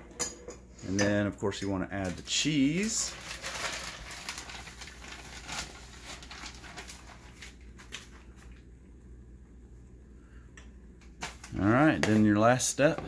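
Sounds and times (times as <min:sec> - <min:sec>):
plastic bag crinkling: 0:01.9 - 0:08.6.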